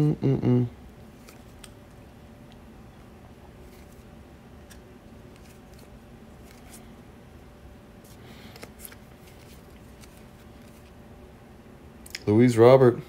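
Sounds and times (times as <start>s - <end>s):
steady low hum: 0.0s - 13.0s
paper cards flicking and rustling: 1.2s - 1.8s, 3.6s - 6.9s, 8.0s - 11.0s.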